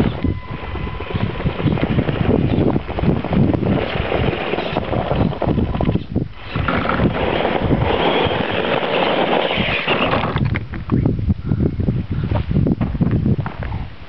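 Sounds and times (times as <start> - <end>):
toy car drivetrain whirring: 0.0 - 10.4
wind noise on microphone: 0.0 - 14.0.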